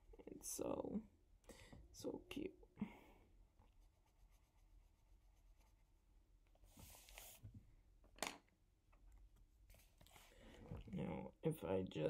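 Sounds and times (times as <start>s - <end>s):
pencil scratching on paper: 3.7s - 6.0s.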